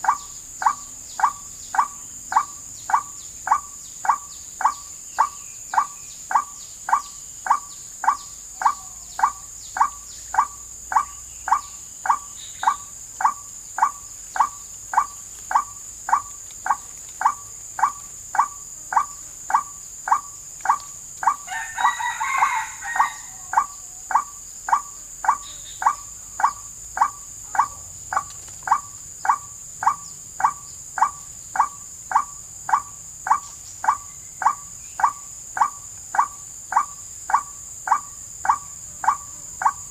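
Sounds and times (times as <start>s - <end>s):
forest insects droning: 0.0s - 39.9s
repeated bird call recording: 0.0s - 39.9s.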